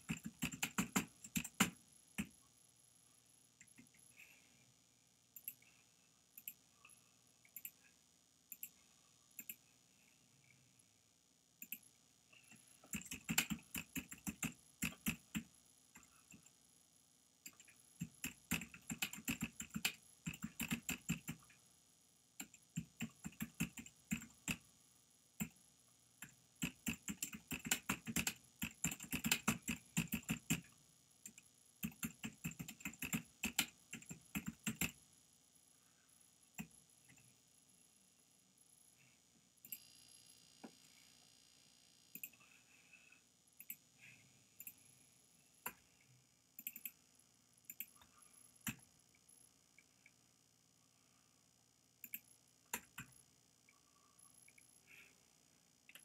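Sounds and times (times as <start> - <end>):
computer keyboard typing: 0.0 - 2.3, 12.5 - 16.4, 17.5 - 21.5, 22.4 - 24.6, 26.2 - 30.7, 31.3 - 35.0, 46.6 - 47.0, 52.0 - 53.1.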